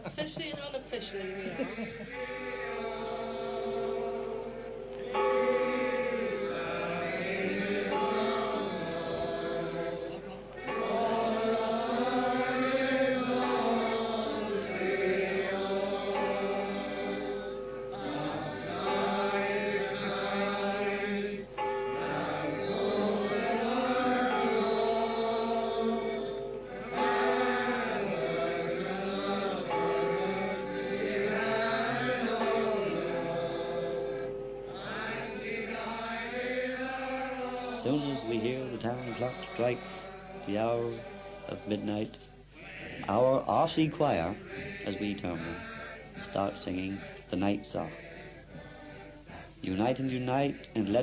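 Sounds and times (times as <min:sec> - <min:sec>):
group singing in chorus: 0:01.1 - 0:51.0
singers breathing: 0:39.8 - 0:40.2.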